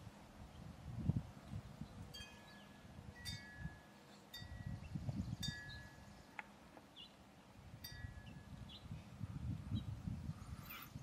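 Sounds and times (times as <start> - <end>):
wind rumbling on microphone: 0.0 - 11.0
wind chime ringing: 2.2 - 4.8.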